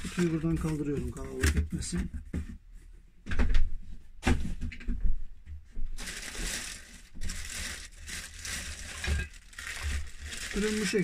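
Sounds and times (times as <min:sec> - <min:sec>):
plastic bag crinkling: 0:00.0 - 0:01.5, 0:06.0 - 0:11.0.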